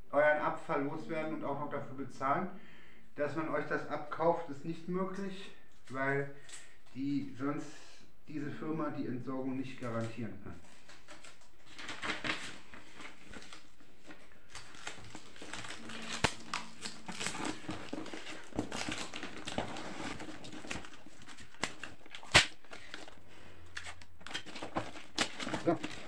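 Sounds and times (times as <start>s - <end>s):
paper and cardboard crinkling: 9.8s - 26.0s
packing tape: 10.8s - 26.0s.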